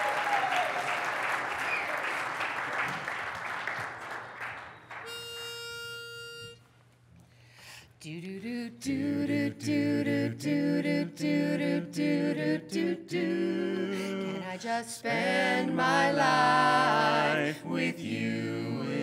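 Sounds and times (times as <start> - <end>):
applause: 0.0 - 5.7
pitch pipe note: 5.1 - 6.6
quartet singing a cappella: 8.2 - 19.0.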